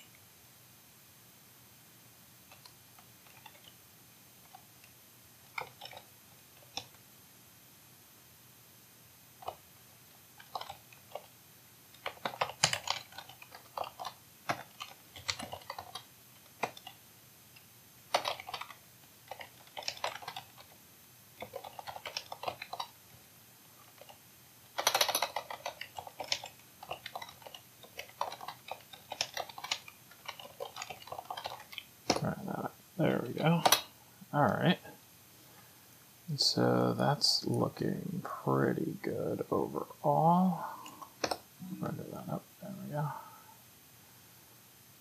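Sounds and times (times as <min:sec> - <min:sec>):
typing on keyboard: 0:02.5 - 0:03.8, 0:05.5 - 0:07.0, 0:10.4 - 0:11.3, 0:11.9 - 0:17.0, 0:18.1 - 0:20.8, 0:21.4 - 0:23.0, 0:23.9 - 0:32.4.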